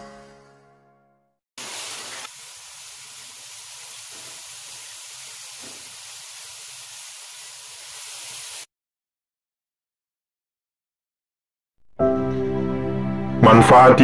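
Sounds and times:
food sizzling in hot oil: 1.6s - 8.7s.

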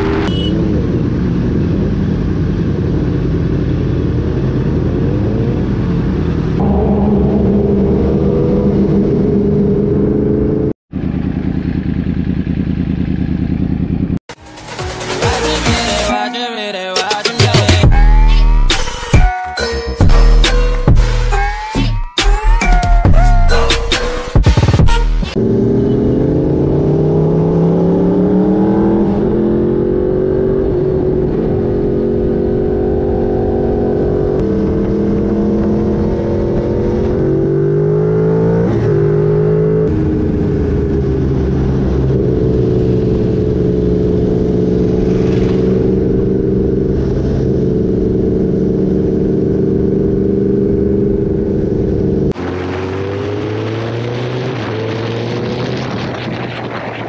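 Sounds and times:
sport bike engine running hard: 0.0s - 14.2s, 38.2s - 52.6s
wind rush: 39.9s - 48.9s, 52.1s - 57.0s.

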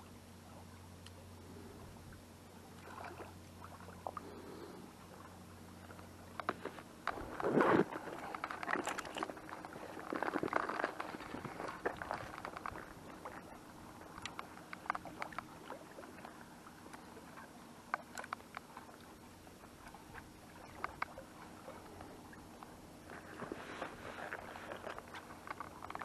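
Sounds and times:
water lapping against concrete: 2.6s - 26.0s.

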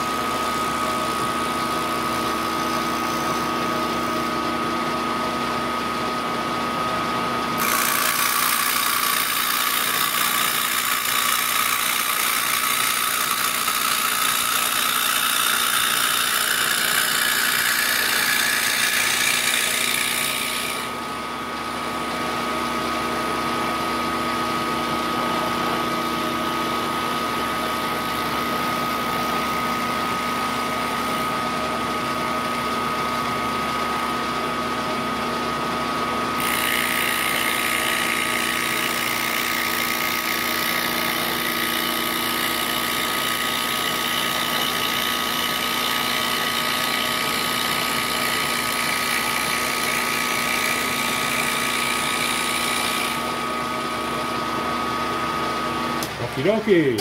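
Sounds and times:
end mill cutting plastic: 0.0s - 57.0s
milling spindle whine: 0.0s - 57.0s.

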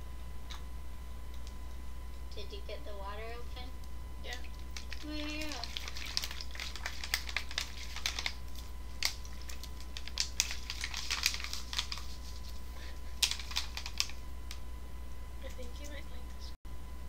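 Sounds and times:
plastic bottle crinkling: 4.3s - 14.2s.

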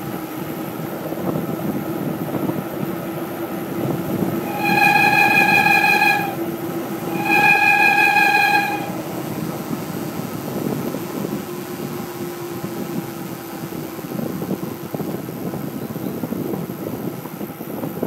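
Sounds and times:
wind rushing over microphone: 0.1s - 18.0s
high steady squeal: 4.1s - 9.4s.

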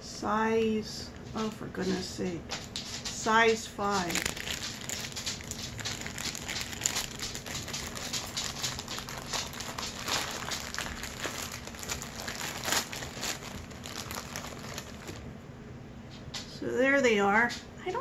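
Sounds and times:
plastic bag crinkling: 3.8s - 15.3s.

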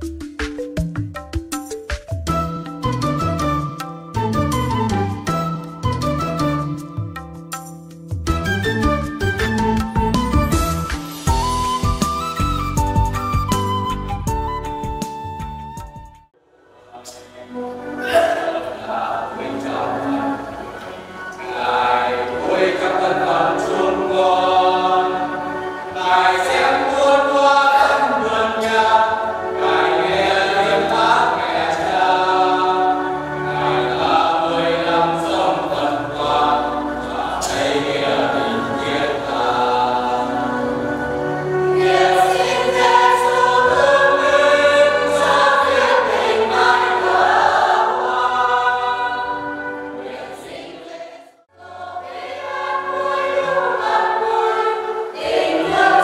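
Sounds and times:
choir singing a hymn: 16.7s - 56.0s.

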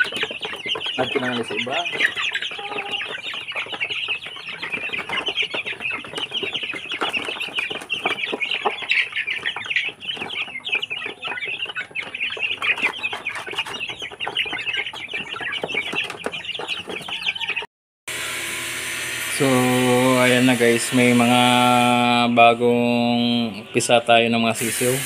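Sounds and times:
beaks pecking plastic trays: 0.0s - 17.5s
chicks peeping and clucking: 0.0s - 25.0s.

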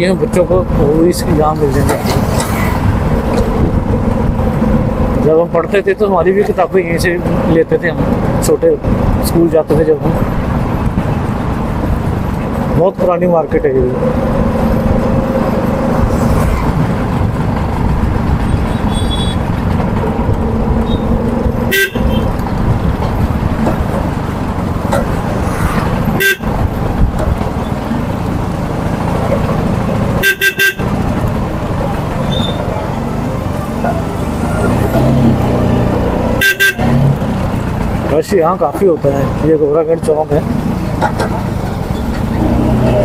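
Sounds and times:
vehicle engines running: 0.0s - 43.0s
car horns honking: 18.4s - 19.6s, 20.8s - 22.4s, 26.1s - 26.6s, 30.1s - 31.1s, 32.2s - 32.7s, 36.3s - 37.4s.

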